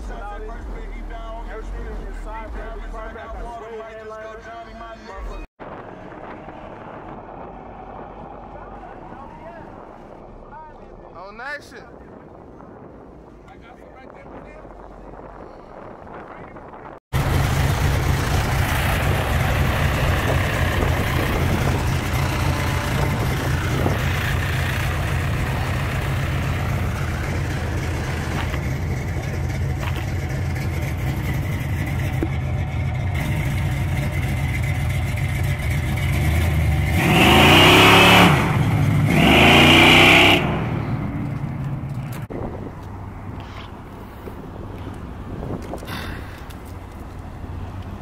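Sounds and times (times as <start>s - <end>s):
car engine idling: 17.1s - 37.9s
car engine revving: 17.2s - 42.2s.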